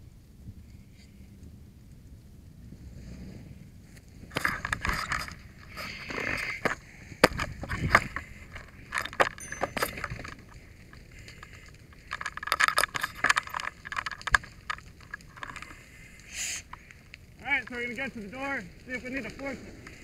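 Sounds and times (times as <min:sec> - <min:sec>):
metal tools rattling and clinking: 0:04.3 - 0:15.8.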